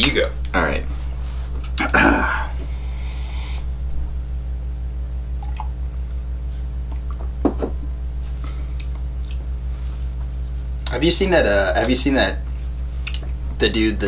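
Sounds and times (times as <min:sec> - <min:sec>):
low electrical hum: 0:00.0 - 0:14.0
mug knocking on wooden table: 0:07.4 - 0:07.9.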